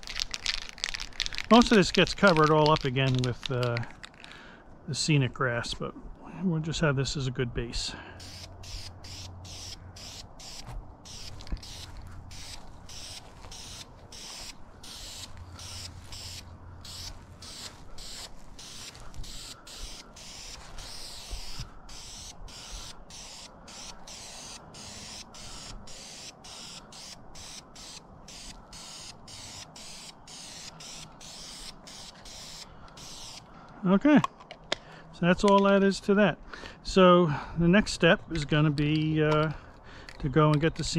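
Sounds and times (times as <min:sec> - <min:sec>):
spray paint can hissing: 0:08.2 - 0:33.4.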